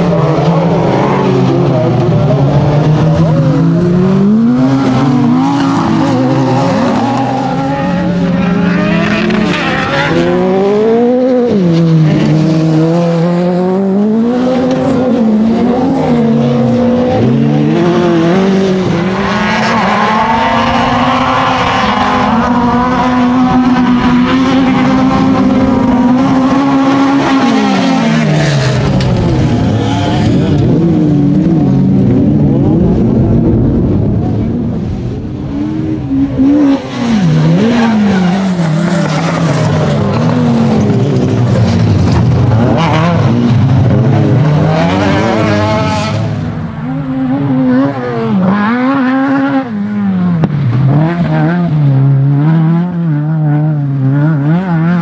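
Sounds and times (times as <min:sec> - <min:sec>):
race car engines revving: 0:00.0 - 0:55.0.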